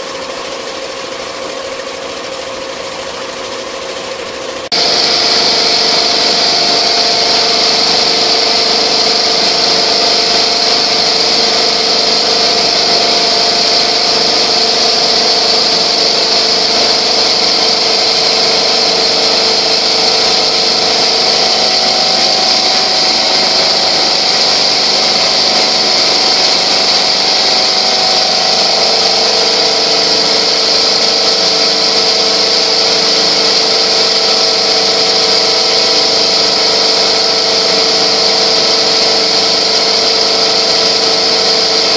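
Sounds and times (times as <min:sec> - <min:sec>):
quilting machine whirring: 0:00.0 - 0:41.9
faint hum: 0:04.7 - 0:33.2.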